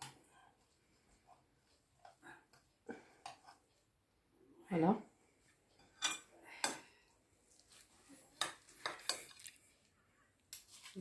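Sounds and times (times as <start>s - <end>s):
cutlery clinking on ceramic plate: 5.8s - 6.8s.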